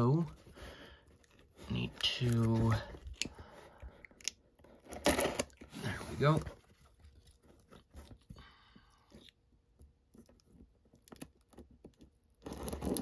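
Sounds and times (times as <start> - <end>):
cardboard rustling: 0.0 - 3.6, 4.6 - 8.4.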